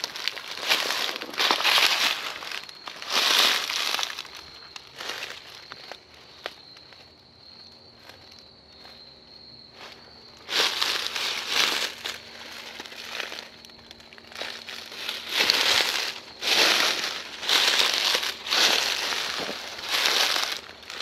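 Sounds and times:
footsteps crunching dry leaves: 0:00.0 - 0:21.0.

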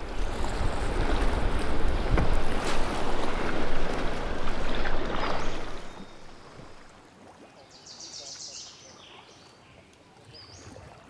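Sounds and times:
wind buffeting microphone: 0:00.0 - 0:06.9
rushing water: 0:00.0 - 0:11.0.

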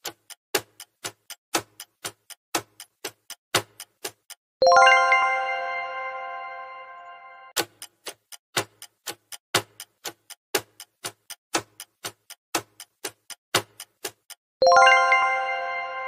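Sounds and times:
countdown timer ticking: 0:00.0 - 0:05.6, 0:07.5 - 0:15.8
ringing chime: 0:04.6 - 0:07.5, 0:14.6 - 0:16.0.

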